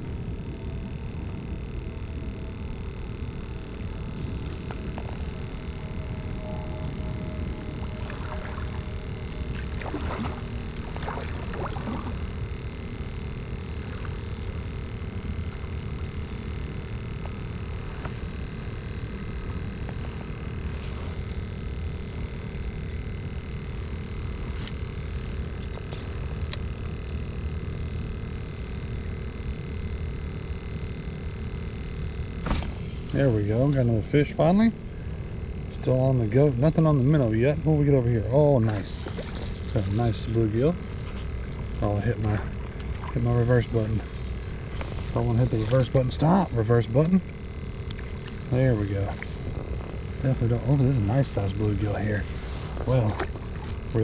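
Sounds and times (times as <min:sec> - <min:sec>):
electric motor humming: 0:00.0 - 0:54.0
water rumble: 0:04.3 - 0:12.7.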